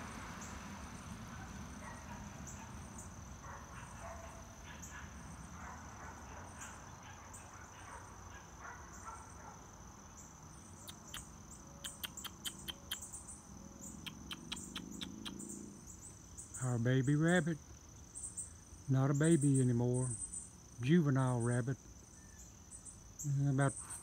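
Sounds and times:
insects trilling: 0.0s - 24.0s
sharp clicks: 11.9s - 13.1s, 14.1s - 15.4s.

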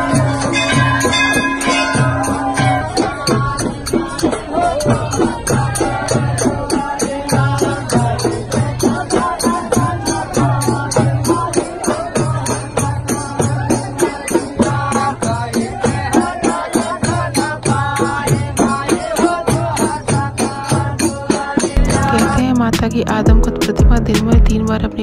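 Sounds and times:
devotional folk singing: 0.0s - 24.8s
jingling hand percussion: 0.0s - 25.0s
deep drum pulses: 21.8s - 25.0s.

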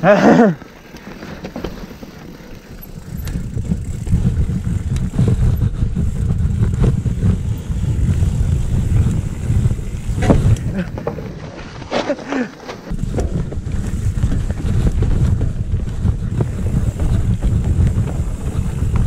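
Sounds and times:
bike tyres rumbling on trail: 0.0s - 19.0s
bike clicks and knocks: 0.6s - 19.0s
wind on microphone: 3.0s - 11.9s, 12.9s - 19.0s.

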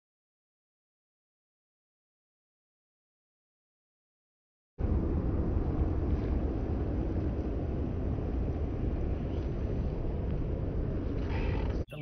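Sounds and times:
wind rumbling on microphone: 4.8s - 12.0s.

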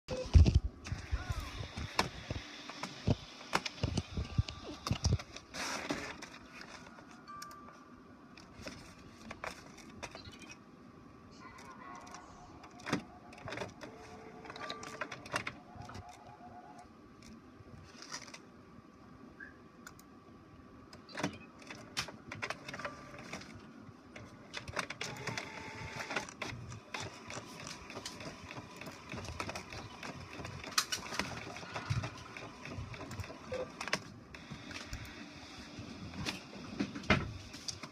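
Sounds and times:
printer motors whirring: 0.1s - 7.2s, 11.4s - 17.4s, 20.9s - 37.9s
printer clicks and clunks: 11.6s - 16.8s, 20.9s - 35.2s.

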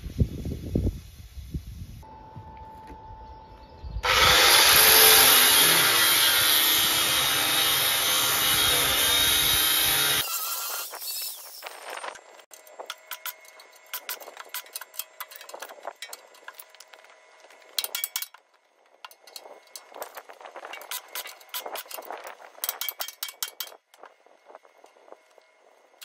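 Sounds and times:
steel tools clinking: 12.5s - 16.9s, 17.6s - 24.1s.

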